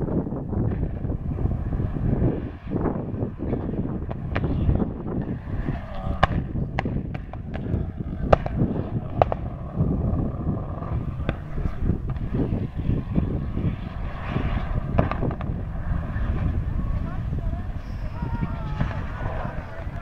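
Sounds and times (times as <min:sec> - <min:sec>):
sharp cracks: 0:03.5 - 0:05.4, 0:06.1 - 0:12.6, 0:14.9 - 0:15.6.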